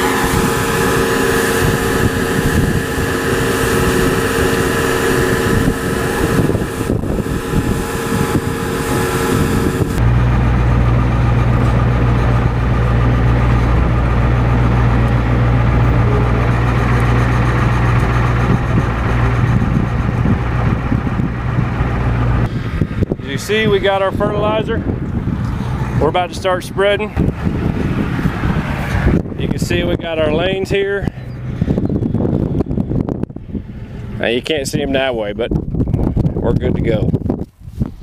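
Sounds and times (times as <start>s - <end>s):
fertilizer pouring: 0.0s - 10.0s
conveyor running: 0.0s - 22.5s
vehicle engine humming: 0.0s - 34.9s.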